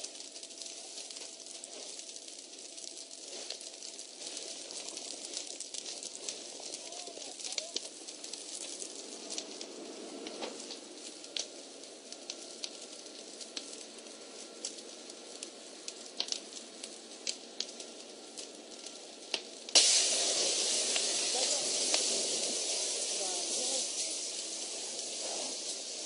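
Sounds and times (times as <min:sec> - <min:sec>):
fire crackling and popping: 0:00.0 - 0:26.0
loud hiss: 0:19.7 - 0:26.0.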